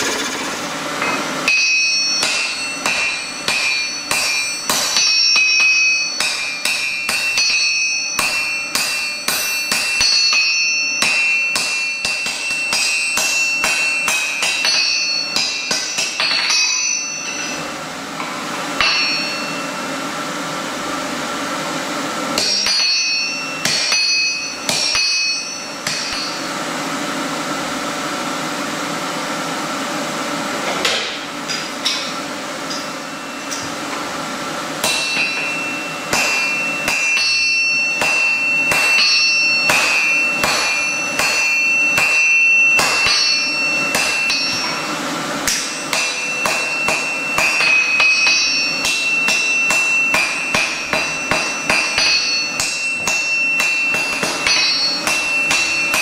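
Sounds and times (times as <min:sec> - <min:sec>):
anvil ringing: 0:00.0 - 0:21.0, 0:22.1 - 0:26.9, 0:30.8 - 0:56.0
hammer striking steel on anvil: 0:00.0 - 0:29.2, 0:30.6 - 0:56.0
steady hum: 0:00.0 - 0:56.0.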